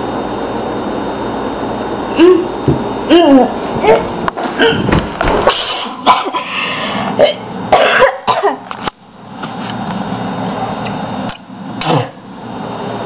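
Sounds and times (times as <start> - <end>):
person coughing: 4.4 - 4.9, 5.5 - 8.6, 11.8 - 12.2.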